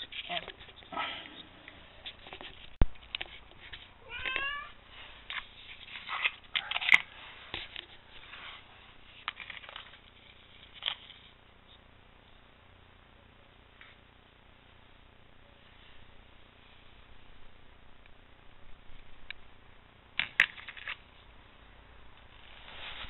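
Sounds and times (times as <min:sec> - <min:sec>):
cat meowing: 0:04.0 - 0:04.8.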